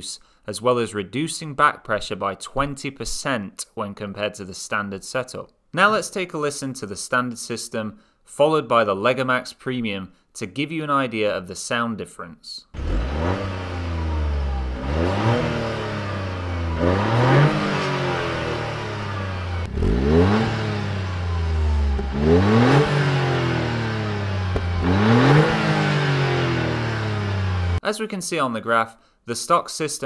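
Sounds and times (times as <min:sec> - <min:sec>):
car engine revving: 0:12.8 - 0:27.8.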